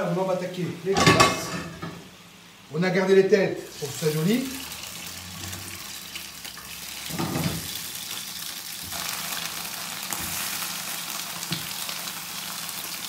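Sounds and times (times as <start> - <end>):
prawns sizzling in hot oil: 3.6 - 13.0.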